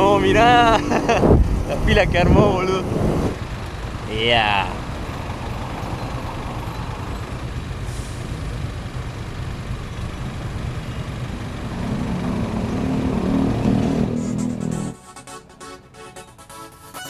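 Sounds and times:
vehicle engine idling: 0.0s - 15.0s
louder pitched sound: 12.2s - 15.0s.

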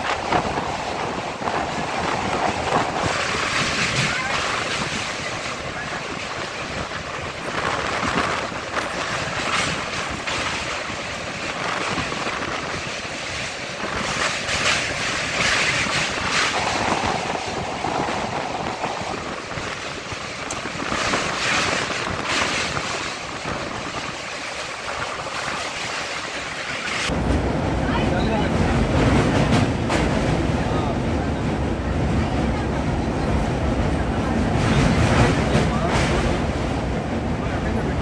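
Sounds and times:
wheels clacking over rail joints: 0.0s - 27.5s
train wheel and rail noise: 0.0s - 38.0s
wind on microphone: 0.0s - 38.0s.

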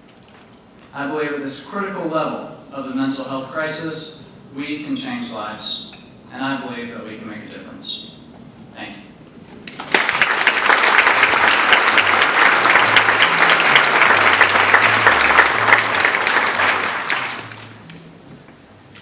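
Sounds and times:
audience applauding: 9.6s - 18.0s.

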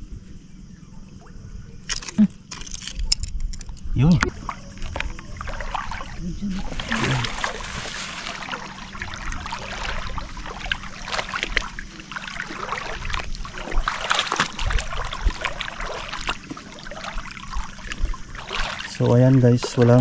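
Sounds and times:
footsteps wading through water: 4.2s - 20.0s.

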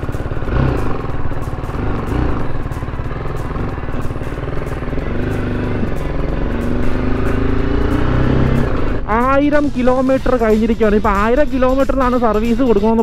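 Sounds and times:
motorcycle engine pulling away: 0.0s - 9.1s.

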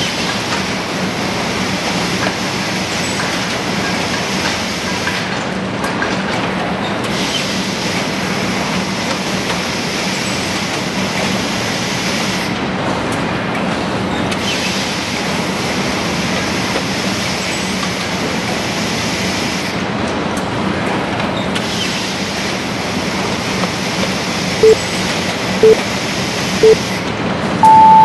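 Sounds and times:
timer beeps: 27.6s - 28.0s.

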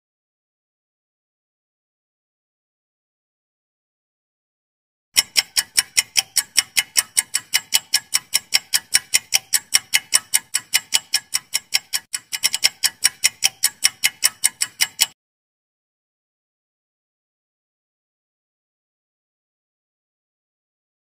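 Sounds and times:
clock ticking: 5.2s - 15.2s.

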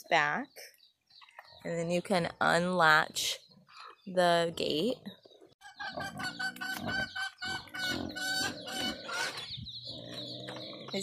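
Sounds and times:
chickens clucking: 5.1s - 11.0s.

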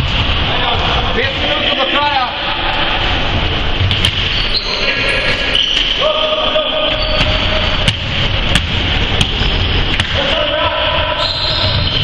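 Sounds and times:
sneakers squeaking on floor: 3.8s - 6.0s, 6.8s - 8.1s, 11.2s - 12.0s
basketball bouncing: 7.1s - 10.2s.

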